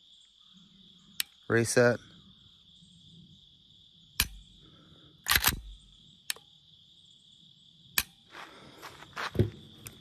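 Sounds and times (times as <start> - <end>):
crickets chirring: 0.0 - 10.0
pistol trigger clicks: 5.3 - 6.4.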